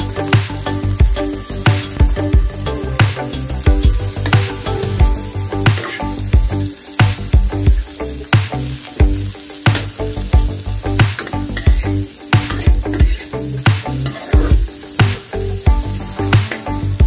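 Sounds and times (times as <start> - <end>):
onions sizzling in hot oil: 0.0 - 17.0
metal spatula scraping a wok: 14.0 - 14.6.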